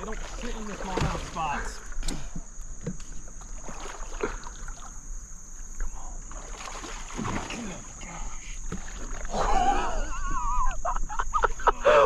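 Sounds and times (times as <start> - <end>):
water splashing beside a kayak: 0.0 - 11.5.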